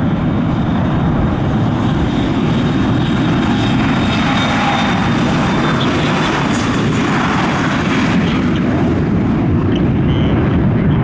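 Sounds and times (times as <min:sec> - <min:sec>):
jet engines rolling past: 0:00.0 - 0:11.0.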